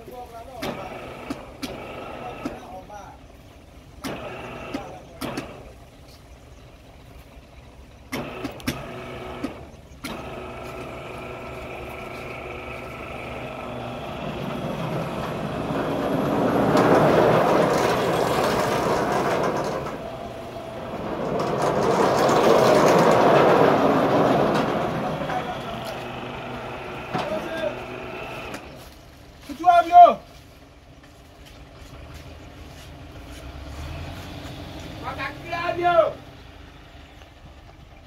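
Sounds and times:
electric motor hum: 8.2 - 28.8.

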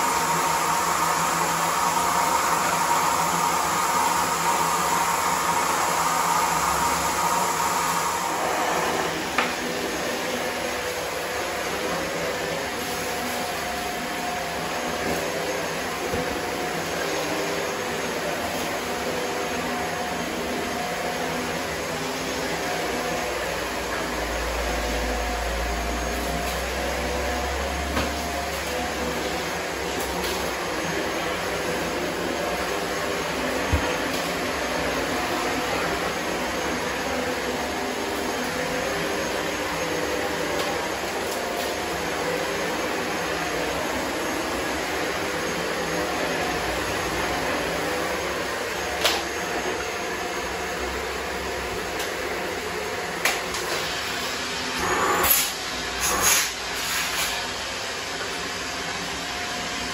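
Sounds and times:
vacuum cleaner running: 0.0 - 59.9.

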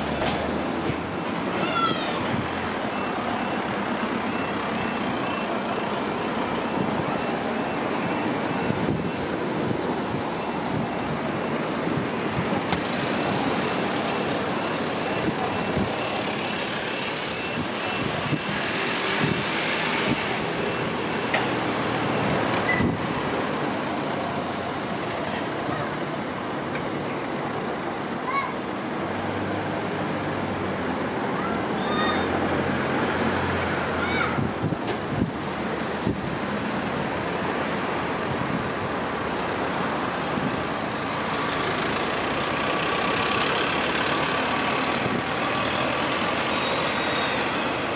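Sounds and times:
road traffic noise: 0.0 - 47.9
level crossing alarm beeping: 2.9 - 11.6, 13.0 - 19.3.

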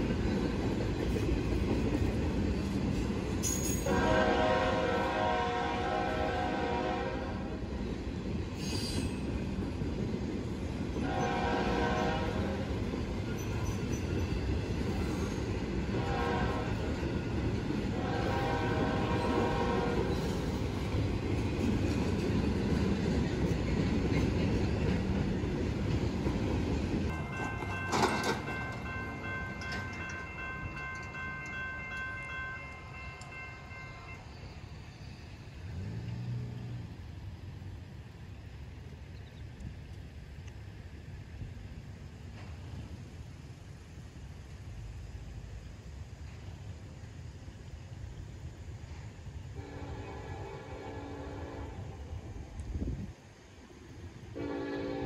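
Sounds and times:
freight train rumbling on rails: 0.0 - 55.0
high ringing crossing tones: 27.1 - 34.6.

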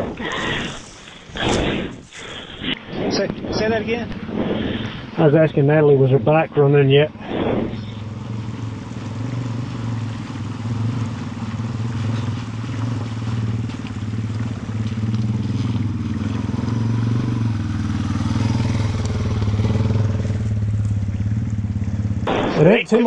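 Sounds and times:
motorcycle engine idling: 7.8 - 23.0.

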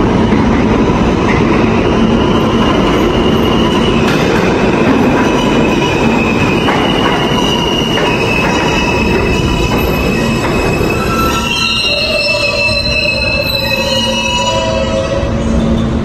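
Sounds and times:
train wheels rumbling on rails: 0.0 - 14.1
high wheel squeal: 1.4 - 16.0.

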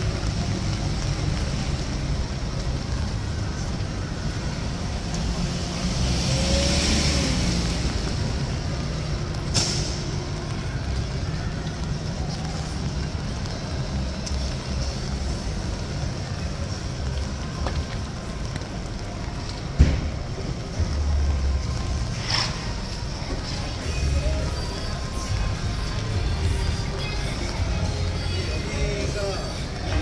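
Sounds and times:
low traffic rumble: 0.0 - 30.0
vehicle passing with hiss: 4.4 - 10.5, 20.9 - 30.0.

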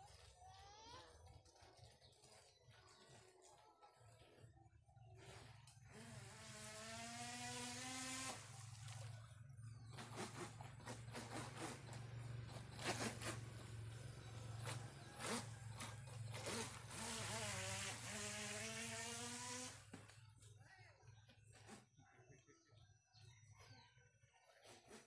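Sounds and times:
electric motor whining: 5.8 - 8.8, 10.1 - 19.9.

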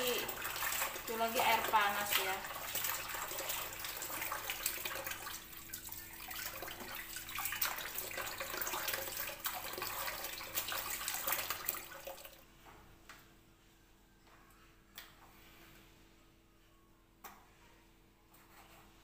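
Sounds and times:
tap water running into bowl: 0.0 - 12.4.

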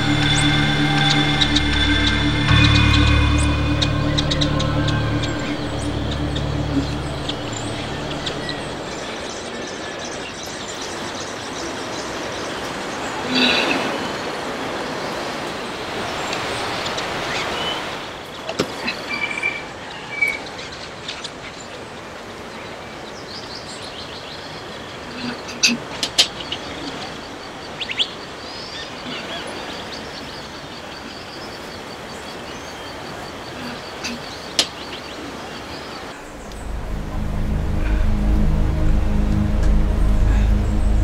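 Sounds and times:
low music: 0.0 - 9.4, 36.2 - 41.0
bird chirps: 0.0 - 11.4
outdoor ambient hiss: 21.0 - 41.0.

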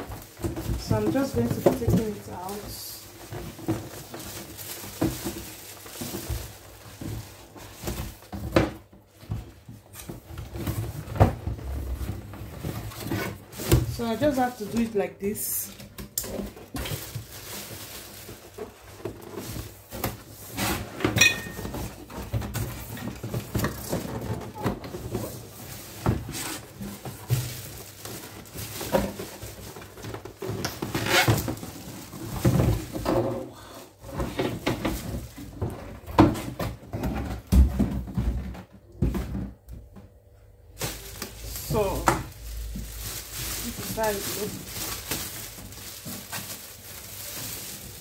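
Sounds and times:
box and appliance knocking: 0.0 - 13.9, 34.2 - 40.0
cardboard box rustling: 0.0 - 14.6, 40.8 - 48.0
plastic bag rustling: 0.0 - 39.6, 40.6 - 48.0.

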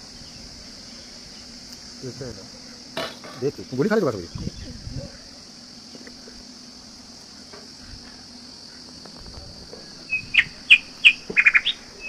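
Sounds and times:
steady high hiss: 0.0 - 12.0
small birds chirping: 9.7 - 12.0.

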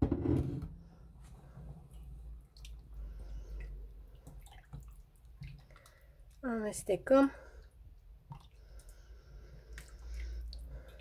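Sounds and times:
water sloshing: 1.4 - 6.7.

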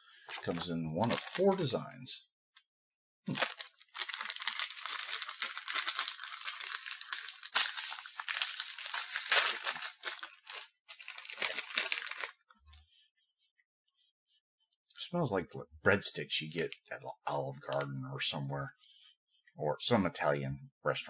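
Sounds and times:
plastic snack packet crinkling: 0.2 - 1.7, 3.3 - 12.5.

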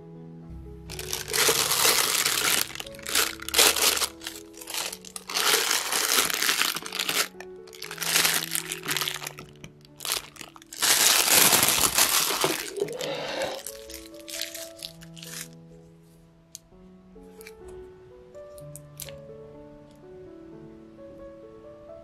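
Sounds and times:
soft background music: 0.0 - 22.0
plastic piping bag crinkling: 0.9 - 15.6.

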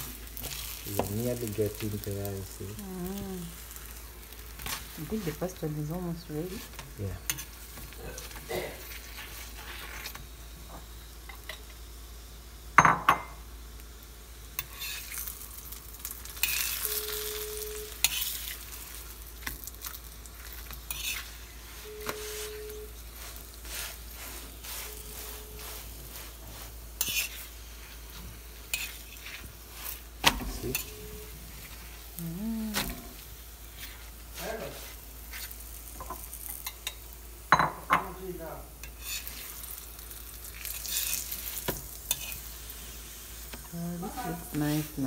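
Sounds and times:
bread sizzling in oil: 0.0 - 45.0
metal spoon scraping a pan: 6.6 - 10.2, 14.6 - 15.3, 16.3 - 17.4, 18.0 - 18.7, 20.4 - 30.0, 38.8 - 39.6, 40.6 - 42.6.

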